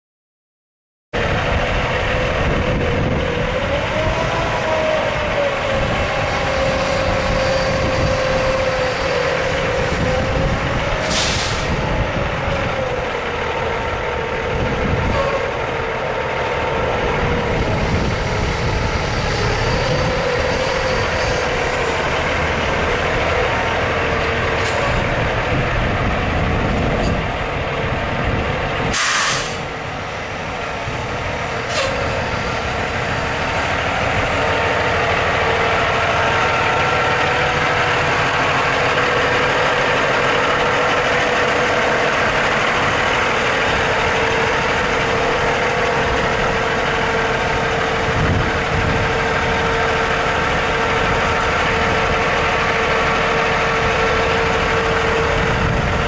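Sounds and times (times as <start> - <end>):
diesel truck engine running: 1.2 - 56.0
air brake hisses: 11.0 - 11.8, 28.9 - 29.7, 31.7 - 32.1.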